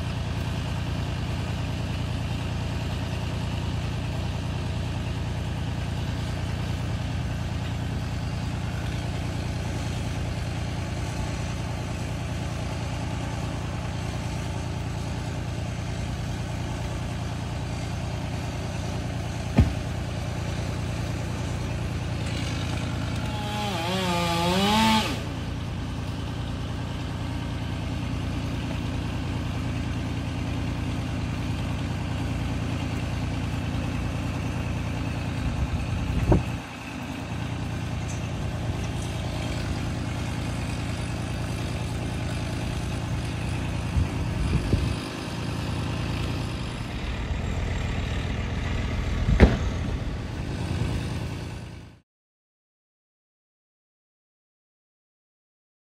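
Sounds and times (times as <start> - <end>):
engine idling: 0.0 - 52.0
sharp knock: 19.6 - 19.9, 49.3 - 49.8
wavering engine-like whine: 43.1 - 51.8.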